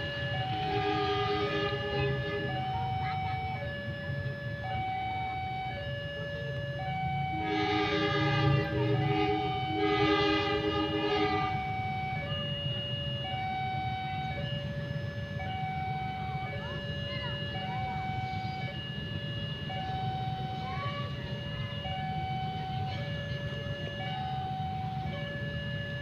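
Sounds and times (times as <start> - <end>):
level crossing alarm: 0.0 - 26.0
train horn blasts: 0.5 - 2.6, 7.3 - 11.7.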